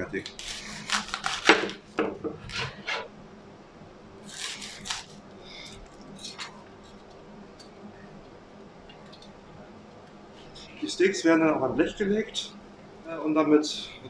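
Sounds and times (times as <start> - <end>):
knife cutting cabbage: 0.1 - 1.8, 4.2 - 6.6.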